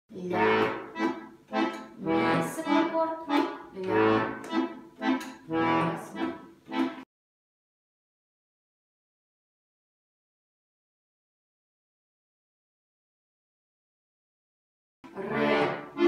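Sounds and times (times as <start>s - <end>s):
accordion waltz accompaniment: 0.2s - 7.1s, 15.1s - 16.0s.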